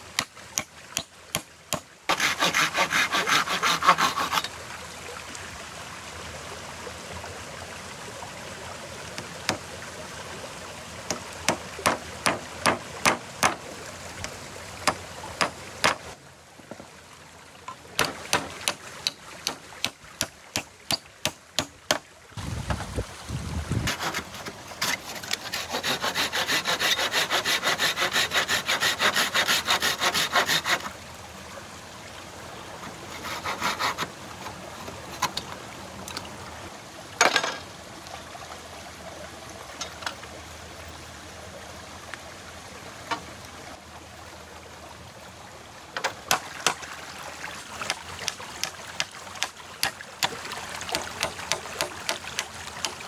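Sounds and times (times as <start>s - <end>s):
hand saw cutting wood: 0.2s - 4.5s, 11.1s - 13.6s, 14.8s - 16.2s, 18.0s - 21.7s, 23.8s - 30.9s, 33.1s - 35.4s, 50.9s - 53.0s.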